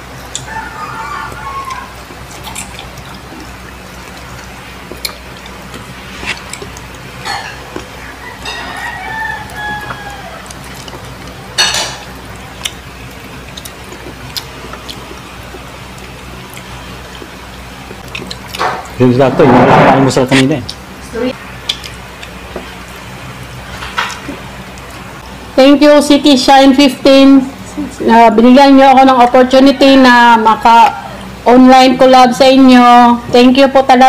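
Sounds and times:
steady low hum: 0:00.0 - 0:34.0
chewing and lip smacks: 0:00.2 - 0:00.6, 0:01.3 - 0:08.4, 0:09.0 - 0:19.0, 0:21.6 - 0:22.9.

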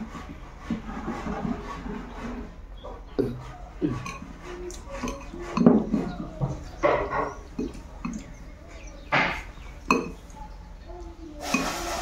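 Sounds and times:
person chewing and smacking: 0:07.3 - 0:08.5.

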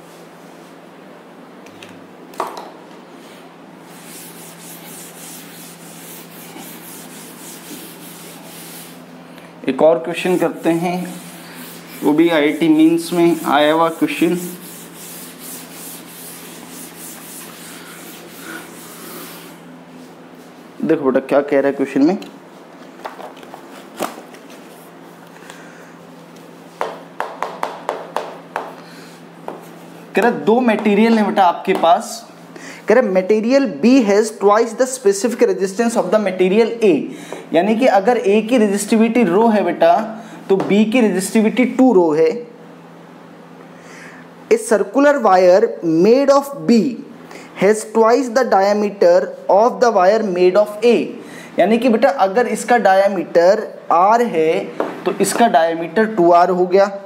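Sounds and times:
duster scraping chalkboard: 0:03.8 - 0:09.1, 0:09.9 - 0:20.8.

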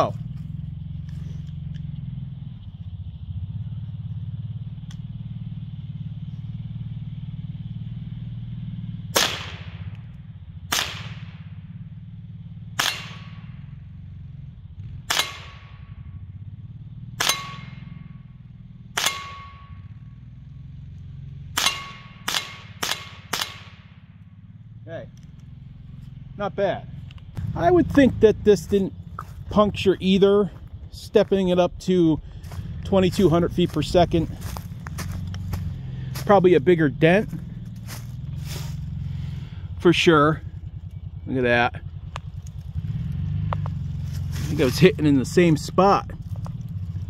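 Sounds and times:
steady low rumble: 0:00.0 - 0:47.0
rifle shots: 0:09.1 - 0:10.0, 0:10.6 - 0:11.5, 0:12.8 - 0:13.6, 0:15.0 - 0:16.0, 0:17.2 - 0:18.0, 0:18.9 - 0:19.8, 0:21.5 - 0:24.0
metallic ring from hit cylinder: 0:17.2 - 0:18.1, 0:19.0 - 0:20.0, 0:21.6 - 0:22.3.

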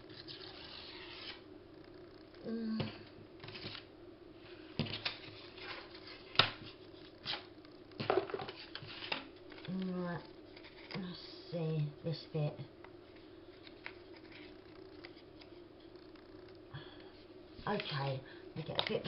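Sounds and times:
faint steady hum: 0:00.0 - 0:19.0
paper rustling: 0:03.4 - 0:03.9, 0:04.8 - 0:09.8.

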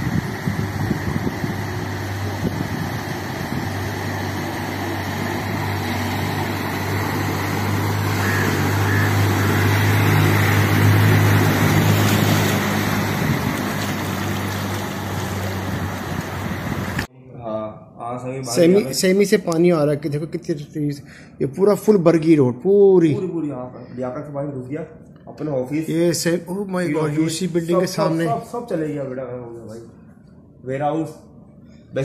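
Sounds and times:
car engine hum: 0:00.0 - 0:17.1
water rushing from wheels: 0:00.0 - 0:17.1.

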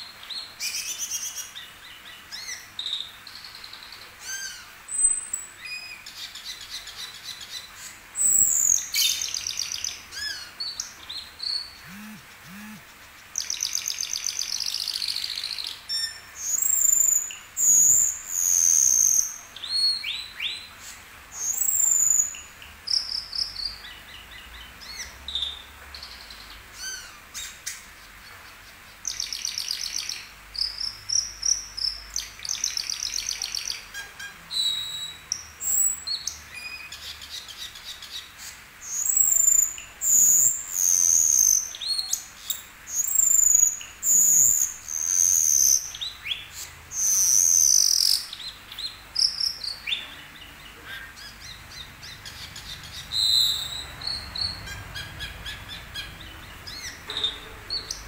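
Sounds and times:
starling singing: 0:11.4 - 0:12.9, 0:38.9 - 0:58.0.

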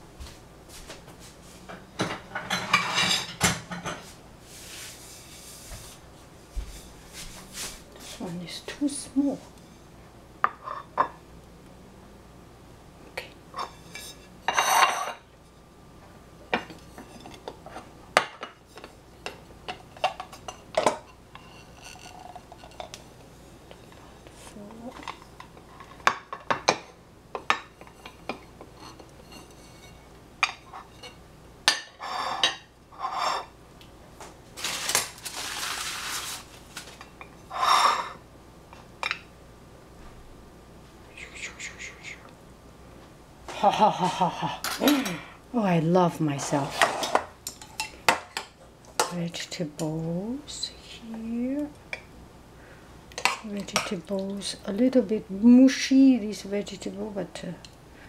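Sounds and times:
plates scraping: 0:00.8 - 0:08.2, 0:13.5 - 0:15.3, 0:16.5 - 0:33.5, 0:34.6 - 0:38.2, 0:46.4 - 0:49.1
ceramic plates clinking: 0:02.0 - 0:04.0, 0:13.6 - 0:15.3.

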